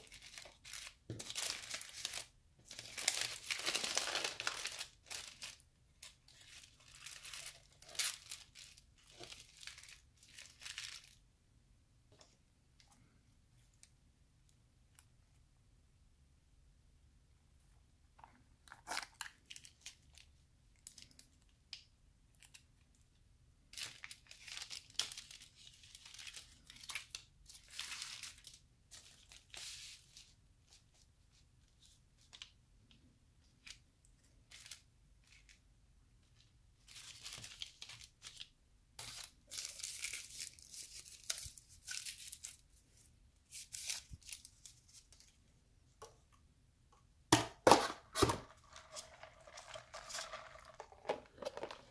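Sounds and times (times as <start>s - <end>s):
lids tearing and crinkling: 0.0s - 11.0s, 47.6s - 51.9s
paper wrapper torn open: 0.0s - 11.1s.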